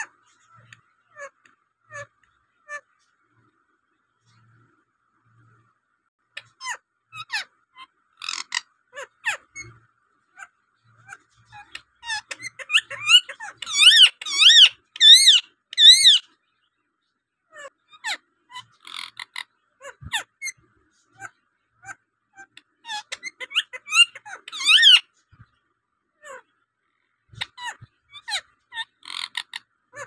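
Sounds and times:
parakeet chirps and clicks: 10.4 - 16.2
parakeet shrill screeches: 11.6 - 16.2.

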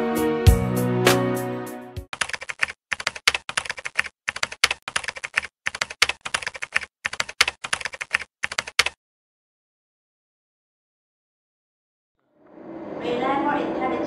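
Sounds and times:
keyboard key clicks: 2.2 - 9.0.

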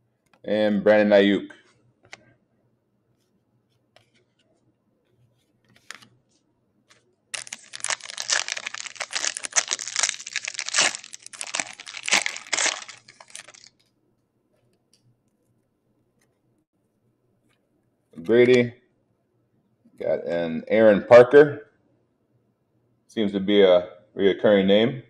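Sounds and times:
foil wrapper tearing and crinkling: 7.4 - 13.8.

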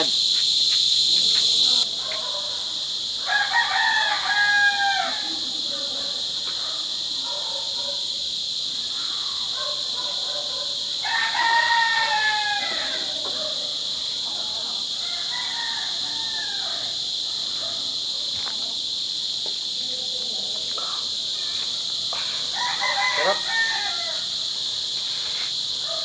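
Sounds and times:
high drone of insects: 0.0 - 26.0
rooster crowing: 3.2 - 5.4, 10.9 - 13.9, 14.8 - 17.2, 22.5 - 24.6.

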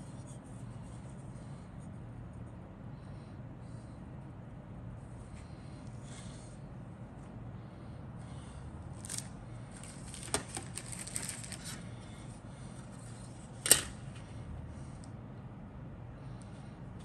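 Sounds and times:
plastic parts rustling and clicking: 9.0 - 11.9.

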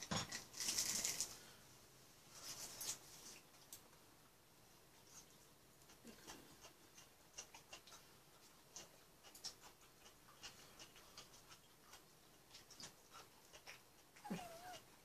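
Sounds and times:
faint clicks and ticks: 5.0 - 14.8.

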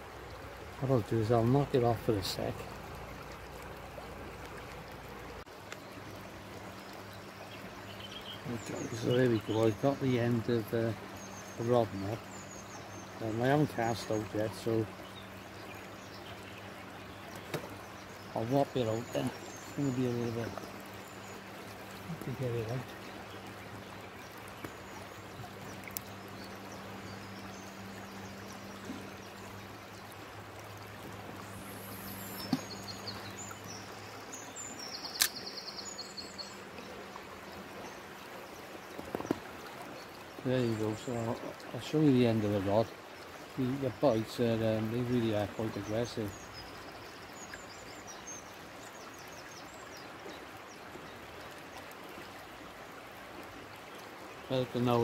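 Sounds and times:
river water flowing: 0.0 - 55.0
small birds chirping: 0.8 - 52.4
faint bird chirps: 31.4 - 38.0
short sharp clicks: 35.1 - 35.5.

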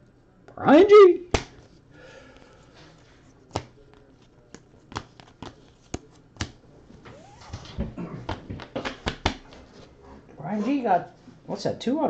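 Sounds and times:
cards clicking and snapping: 1.3 - 1.7, 3.5 - 6.6, 8.3 - 9.5.

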